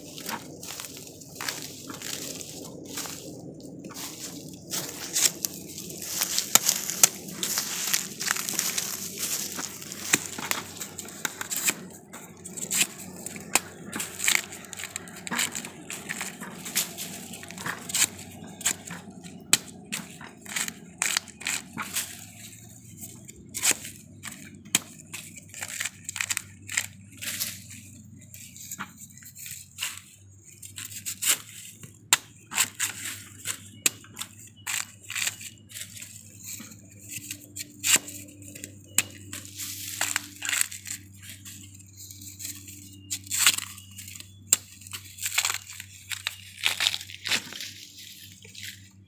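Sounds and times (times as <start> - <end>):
sheaths tearing and crackling: 0.0 - 49.0
knife cutting husk: 11.2 - 22.4.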